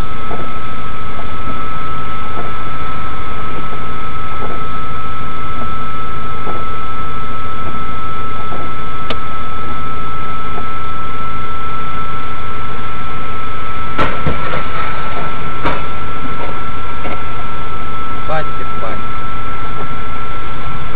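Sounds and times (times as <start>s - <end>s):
vehicle noise with high whine: 0.0s - 20.9s
sharp knocks: 14.0s - 17.2s.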